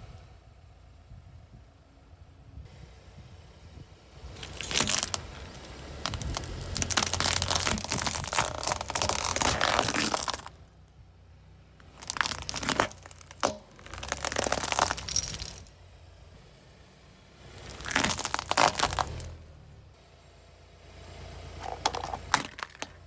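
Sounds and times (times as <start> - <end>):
plastic and wicker crushed under tyre: 4.4 - 10.6, 11.8 - 15.7, 17.6 - 19.4, 21.6 - 23.0
sharp cracks: 4.4 - 10.6, 11.8 - 15.7, 17.6 - 19.3, 21.6 - 23.0.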